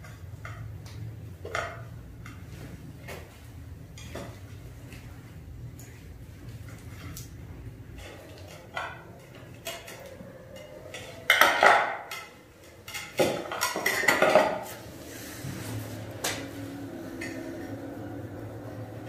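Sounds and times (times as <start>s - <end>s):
dishes and utensils clattering: 1.4s - 2.6s, 3.9s - 4.6s, 7.8s - 19.0s.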